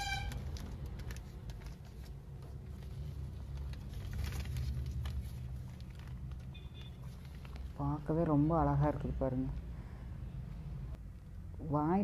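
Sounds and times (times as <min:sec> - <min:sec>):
paper and leaf crinkling: 0:00.3 - 0:08.1.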